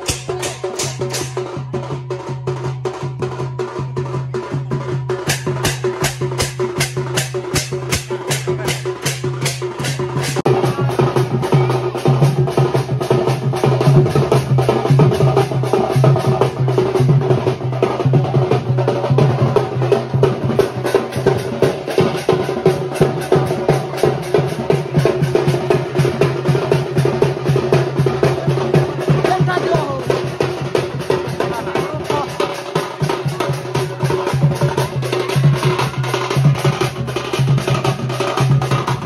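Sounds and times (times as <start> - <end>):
barrel drum beaten fast: 0.0 - 39.0.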